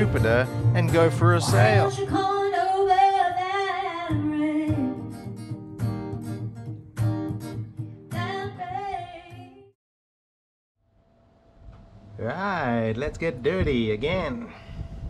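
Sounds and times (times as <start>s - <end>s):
strummed acoustic guitar: 0.0s - 9.5s
woman singing: 1.4s - 5.1s, 8.1s - 9.7s.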